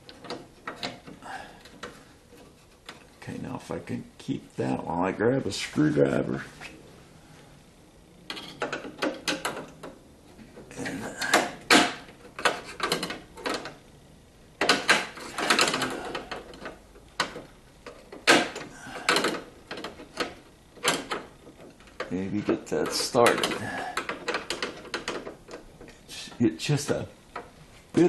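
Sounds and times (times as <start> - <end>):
clicks and scrapes of hand work: 0.0 - 3.2, 8.3 - 13.8, 14.6 - 26.0.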